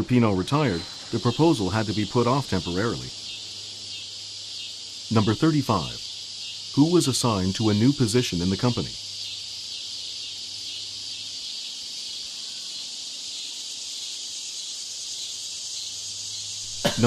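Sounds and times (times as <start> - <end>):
faint low hum: 0.0 - 9.4
high-pitched hiss: 0.0 - 17.0.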